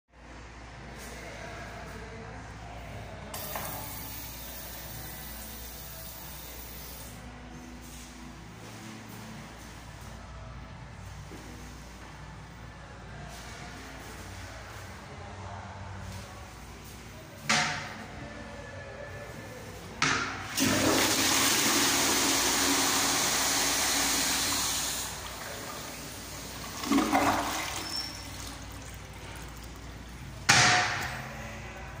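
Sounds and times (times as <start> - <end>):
faucet water running into basin: 20.6 - 30.0.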